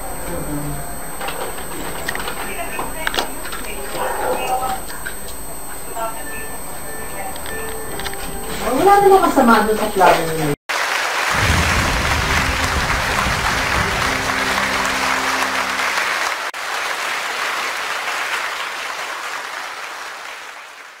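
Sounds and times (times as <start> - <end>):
music holding low notes: 0.0 - 3.8, 5.4 - 9.5, 11.4 - 16.3
crowd applause: 10.3 - 21.0.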